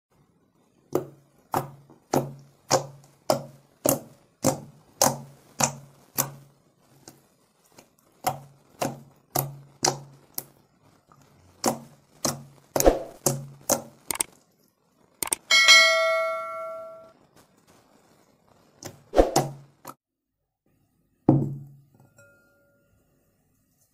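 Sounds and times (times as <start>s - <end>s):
sticky slime squelches: 0.8s - 14.6s.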